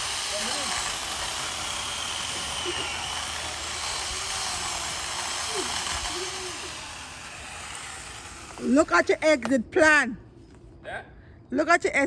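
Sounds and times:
chainsaw cutting wood: 0.0 - 9.5.

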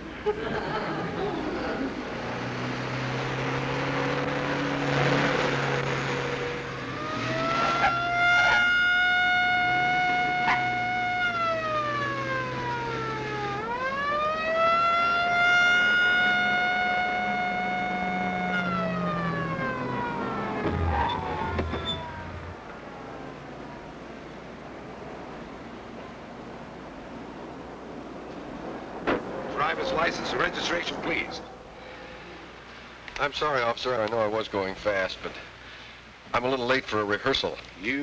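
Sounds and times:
car engine hum: 0.0 - 33.1
mechanical siren wailing: 3.5 - 23.6.

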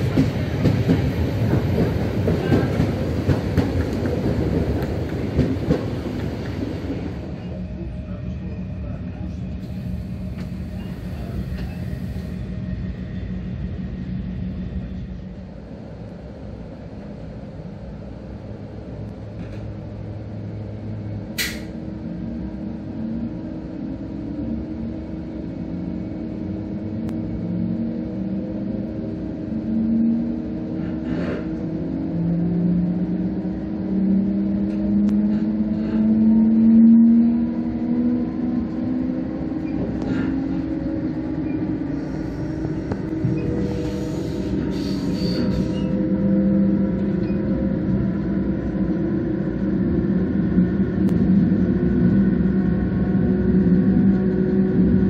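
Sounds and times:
sharp click: 21.4 - 21.7.

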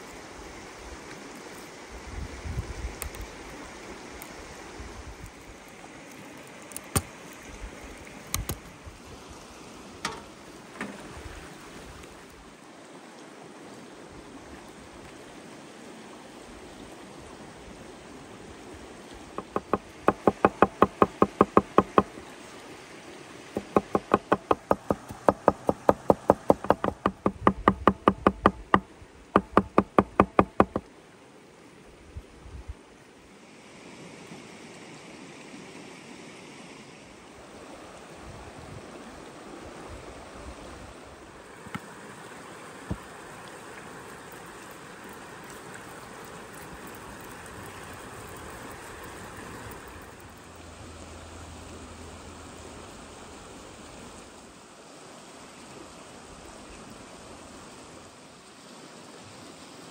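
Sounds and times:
river rushing: 0.0 - 31.9, 33.1 - 59.9
cleaver chopping on wooden board: 19.4 - 22.2, 23.6 - 30.8.

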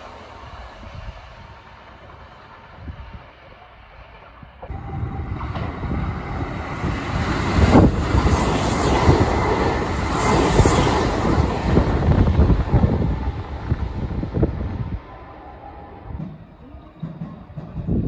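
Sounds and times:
train wheels rumbling on rails: 0.0 - 18.0
wind buffeting microphone: 4.4 - 16.2.

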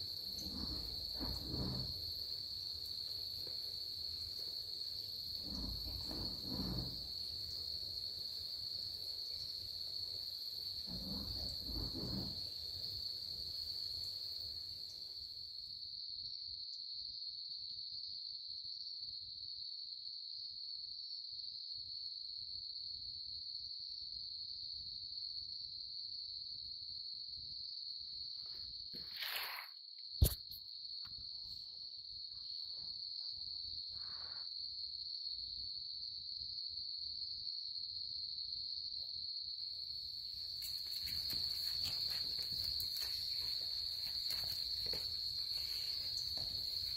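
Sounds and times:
crickets trilling: 0.0 - 17.9, 23.9 - 46.9
sharp click: 30.2 - 30.6.

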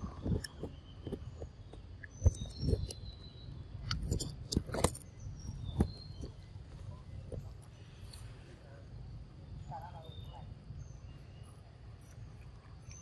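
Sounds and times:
birds chirping faintly: 0.0 - 13.0.

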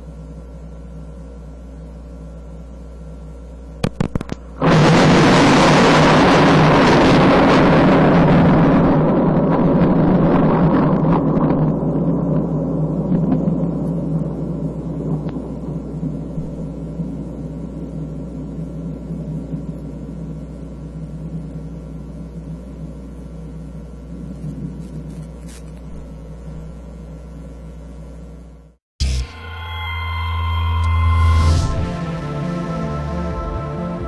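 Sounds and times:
steady electrical hum: 0.0 - 34.0
thunder rumble: 4.6 - 21.6.

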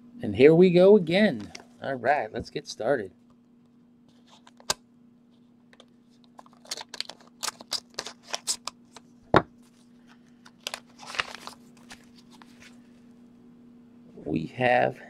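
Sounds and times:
faint steady hum: 0.0 - 15.0
paper envelope rustling: 5.3 - 13.0.

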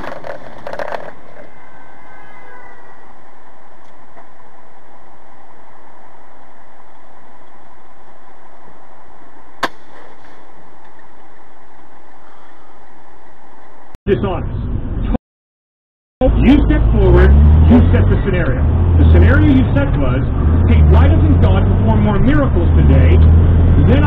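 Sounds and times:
truck road and engine noise: 0.0 - 15.2, 16.2 - 24.0.

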